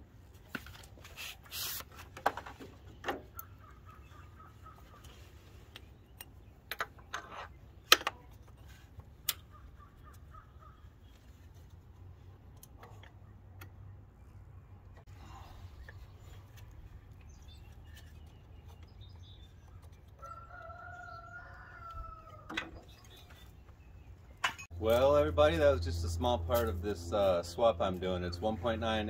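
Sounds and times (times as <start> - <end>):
clicks and knocks on metal parts: 6.1 - 8.6.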